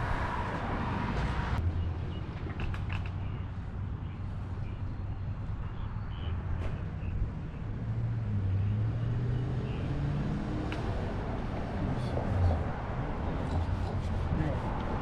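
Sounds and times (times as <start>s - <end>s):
engine hum rising in pitch: 7.0s - 12.3s.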